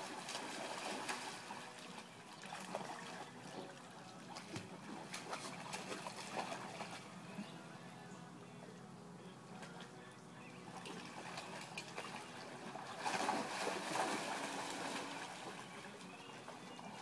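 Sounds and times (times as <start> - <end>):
dogs splashing in water: 0.0 - 7.2, 10.7 - 17.0
trickling water: 0.0 - 7.4, 10.6 - 17.0.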